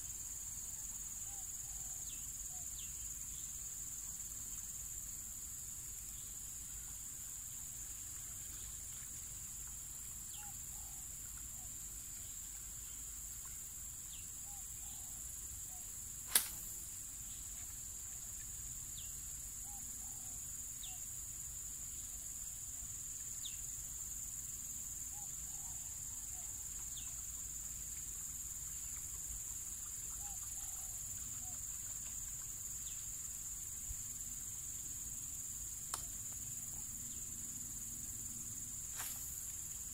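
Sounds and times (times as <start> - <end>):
high-pitched insect chorus: 0.0 - 39.9
sharp click: 16.3 - 16.8, 35.9 - 36.1.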